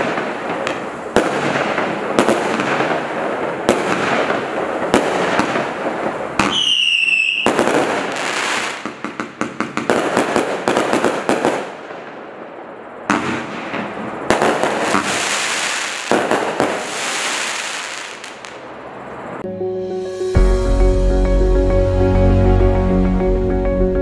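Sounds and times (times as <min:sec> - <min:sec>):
sharp firework bangs: 0:00.0 - 0:12.2, 0:13.0 - 0:18.6
firework crackling: 0:00.0 - 0:19.4
firework whistle: 0:06.4 - 0:08.8, 0:14.7 - 0:18.6.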